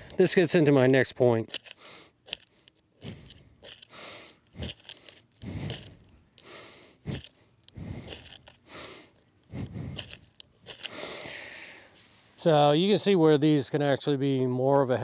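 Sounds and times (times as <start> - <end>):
fire-starter rod scraping: 0.0 - 6.5, 7.1 - 11.3.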